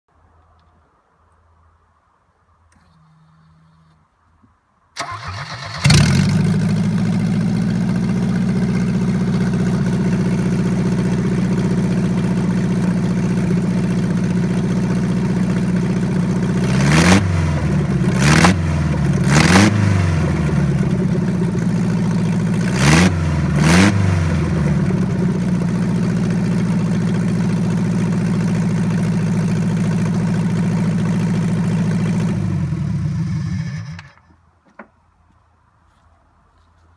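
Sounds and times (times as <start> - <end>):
petrol engine starting and idling: 5.0 - 34.3
engine revving in blips: 16.6 - 21.0, 22.6 - 24.8.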